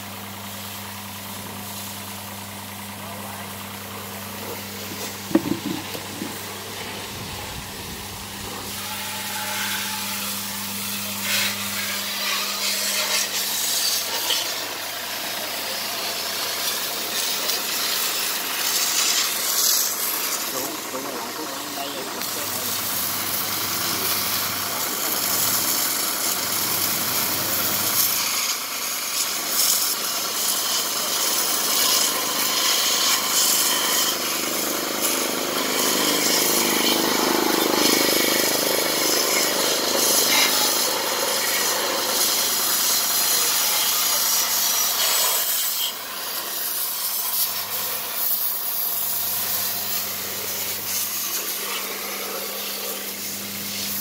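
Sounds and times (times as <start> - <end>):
high-pressure water spray hissing: 0.0 - 54.0
low machine hum: 0.1 - 12.9.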